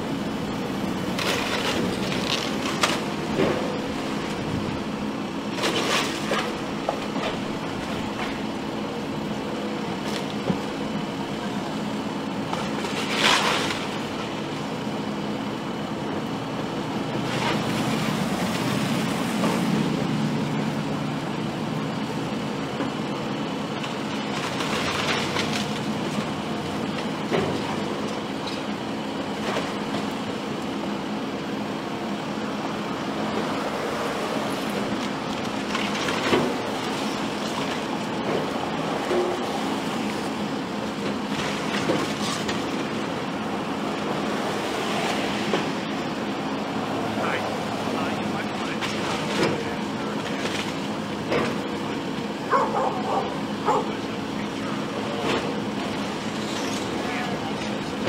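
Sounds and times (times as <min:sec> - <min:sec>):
heavy machine engine running: 0:00.0 - 0:58.0
debris crashing and crunching: 0:01.0 - 0:04.4, 0:24.1 - 0:26.4.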